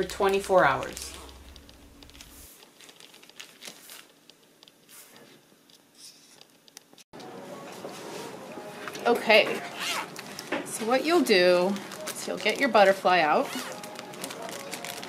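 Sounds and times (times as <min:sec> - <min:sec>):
steady low hum: 0:00.0 - 0:02.5
plastic zipper bag crinkling: 0:00.0 - 0:05.0, 0:09.1 - 0:15.0.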